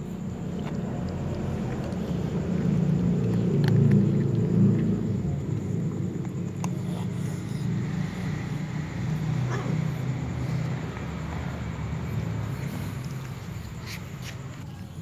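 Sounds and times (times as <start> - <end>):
clicks of eating: 0.1 - 15.0
cat growling: 6.4 - 13.0.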